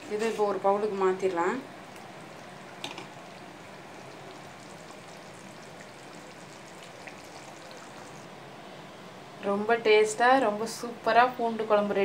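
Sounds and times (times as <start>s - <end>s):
gravy simmering in a pot: 0.9s - 8.4s.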